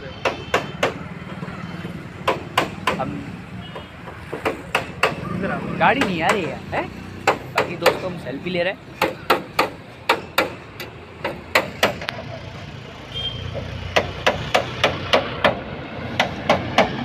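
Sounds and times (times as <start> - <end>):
sharp knocks: 0.2 - 5.2, 7.2 - 8.2, 9.0 - 12.1, 13.5 - 17.0.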